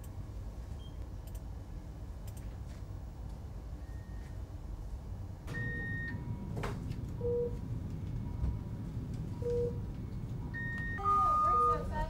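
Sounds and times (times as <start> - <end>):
low room hum: 0.0 - 12.0
click: 1.2 - 1.5.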